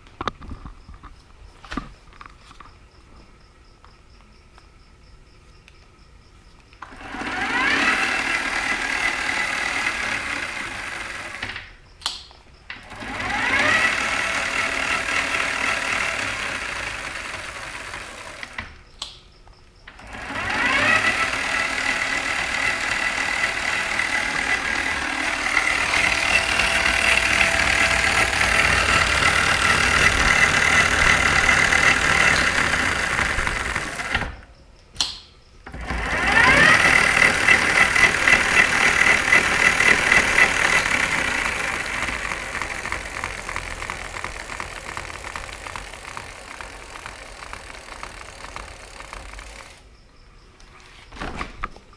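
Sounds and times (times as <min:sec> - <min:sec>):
electric bike motor whining: 0:06.8 - 0:11.6, 0:12.8 - 0:18.7, 0:19.9 - 0:34.5, 0:35.7 - 0:49.8.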